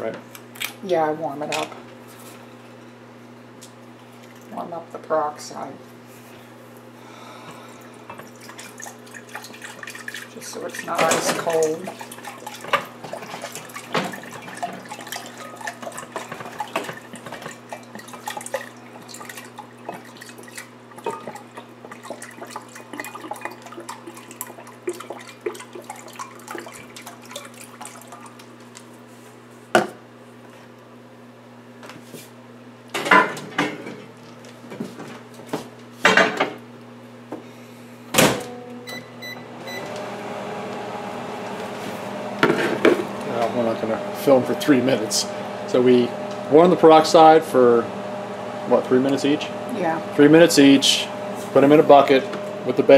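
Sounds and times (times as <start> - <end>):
microwave running: 0.0 - 52.9
liquid glugging from bottle: 8.2 - 28.5
microwave door shutting: 38.1 - 38.6
keypad beeps: 38.9 - 39.9.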